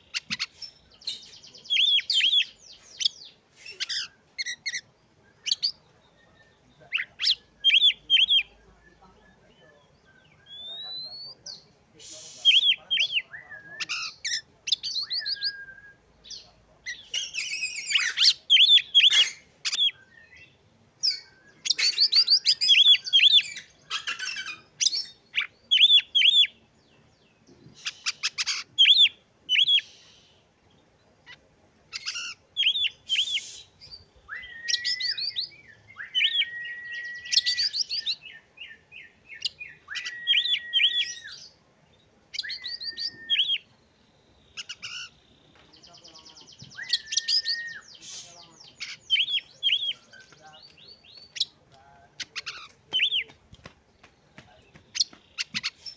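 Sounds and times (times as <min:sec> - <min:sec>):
bird singing chirps and whistles: 0:00.1 - 0:06.3, 0:06.9 - 0:09.0, 0:10.0 - 0:26.5, 0:27.8 - 0:30.0, 0:32.0 - 0:41.6, 0:42.3 - 0:43.7, 0:45.8 - 0:51.6.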